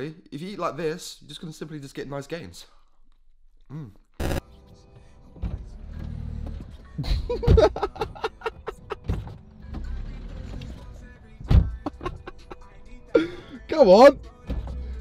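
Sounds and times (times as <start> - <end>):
music: 4.2 - 15.0.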